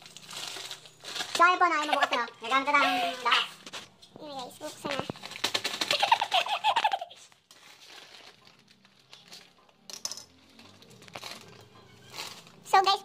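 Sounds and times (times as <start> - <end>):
plastic packets crinkling: 0.0 - 9.7, 10.3 - 13.0
person speaking: 1.4 - 3.6.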